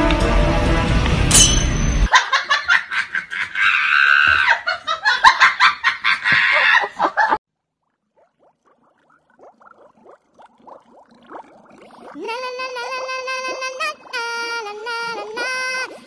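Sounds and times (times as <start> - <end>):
music: 0.0 - 2.1
laughter in choppy bursts: 2.1 - 7.4.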